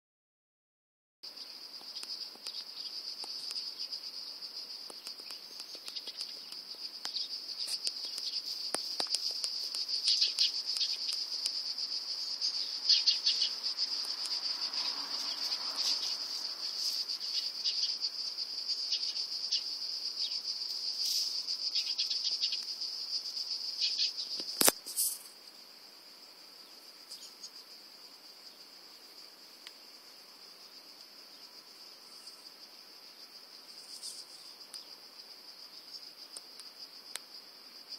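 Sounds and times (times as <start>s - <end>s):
insects chirring: 1.2s - 37.9s
sharp click: 24.4s - 25.2s.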